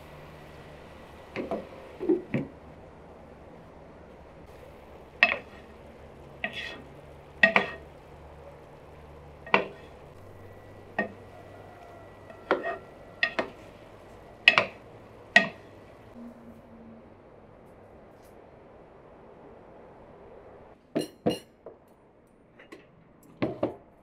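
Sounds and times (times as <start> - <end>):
frying sizzle: 0.0 - 16.2
wooden spoon knocking metal pan: 5.2 - 5.6, 7.4 - 7.8, 11.0 - 11.2, 14.4 - 14.8, 15.4 - 15.6.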